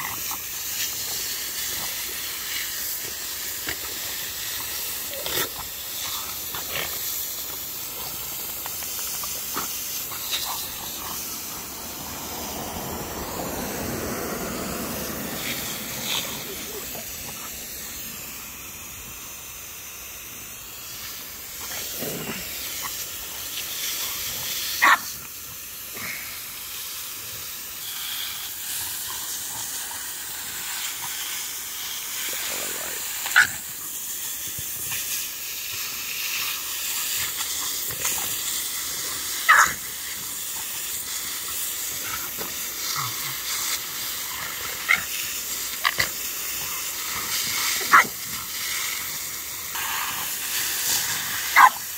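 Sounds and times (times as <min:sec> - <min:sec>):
hose spraying water: 0:00.0 - 0:51.9
dog barking: 0:24.8 - 0:25.1, 0:39.5 - 0:39.8, 0:47.8 - 0:48.2, 0:51.5 - 0:51.8.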